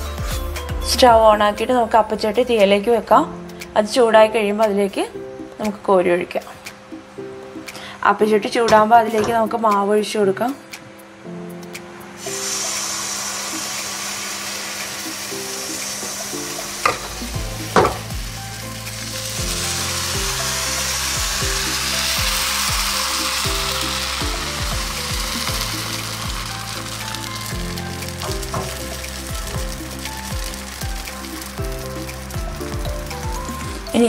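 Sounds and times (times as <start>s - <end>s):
background music with low beat: 0.0s - 4.0s, 4.6s - 7.9s, 8.7s - 34.0s
batter sizzling in pan: 12.2s - 34.0s
sharp knocks: 17.7s - 18.1s.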